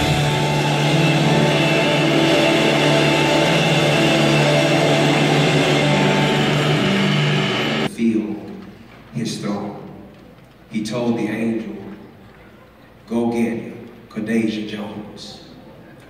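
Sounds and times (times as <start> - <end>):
church band music: 0.0 - 8.8.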